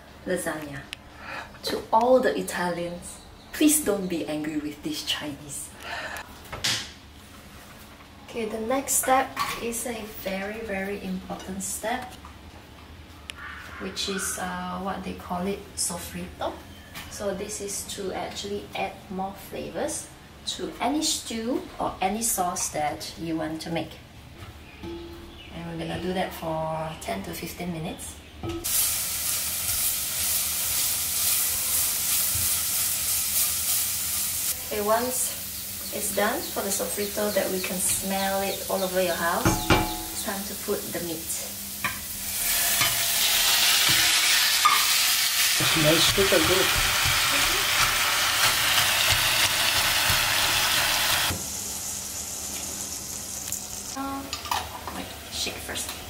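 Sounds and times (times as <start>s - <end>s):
vegetables sizzling in pot: 28.6s - 56.0s.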